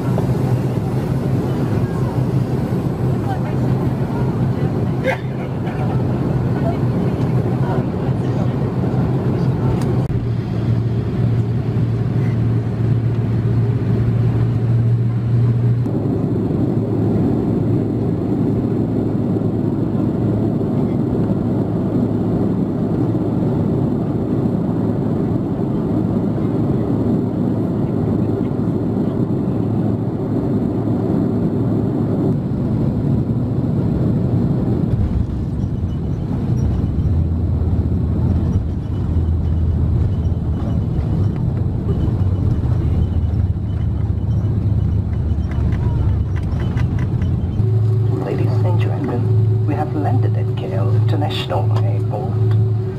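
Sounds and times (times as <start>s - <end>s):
aircraft cabin engine rumble: 0.0s - 52.9s.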